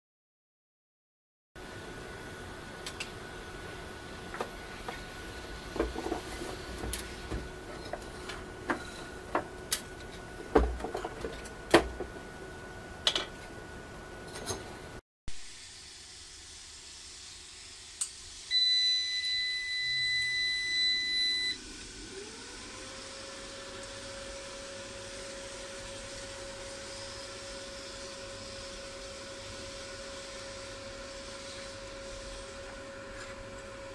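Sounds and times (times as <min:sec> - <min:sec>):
long high buzzer beep: 0:18.5 - 0:21.6
rising electronic whine: 0:19.3 - 0:23.8.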